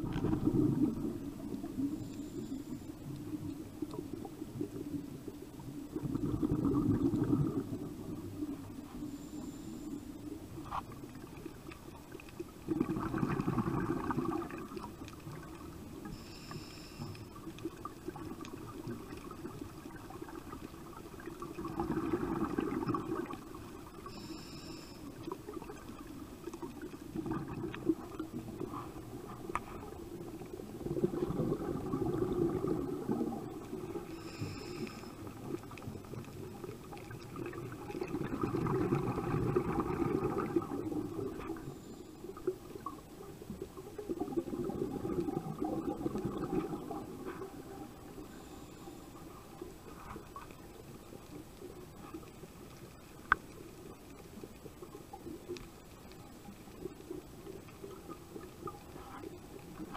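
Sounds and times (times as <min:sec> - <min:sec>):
exhaled bubbles gurgling underwater: 0:00.0 - 0:59.9
regulator hiss: 0:16.0 - 0:17.5, 0:24.0 - 0:25.3.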